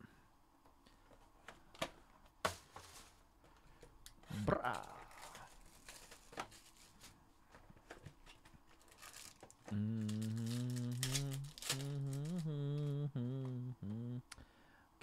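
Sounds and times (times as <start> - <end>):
box and wrapper rustling: 2.3 - 3.9, 4.7 - 12.9
man humming: 4.2 - 5.4, 9.6 - 14.4
wrapper tearing: 4.7 - 7.1, 8.7 - 12.4.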